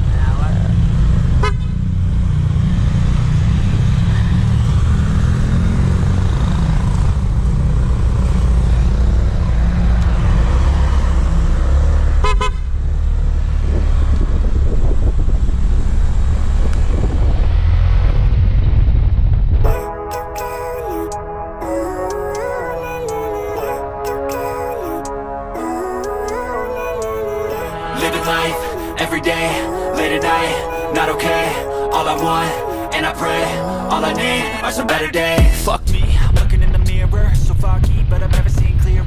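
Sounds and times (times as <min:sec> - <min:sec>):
heavy low rumble: 0:00.0 - 0:24.0, 0:25.2 - 0:39.0
horn beep: 0:12.2 - 0:12.7.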